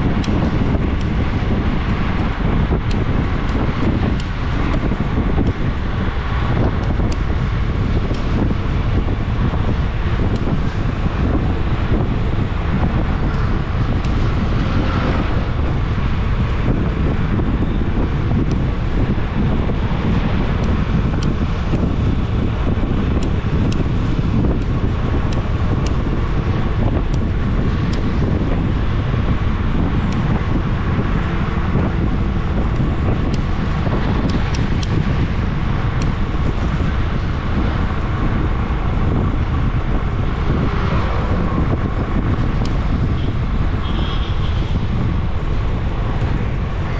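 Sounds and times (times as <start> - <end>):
vehicle road noise: 0.0 - 46.9
wind noise on microphone: 0.0 - 46.9.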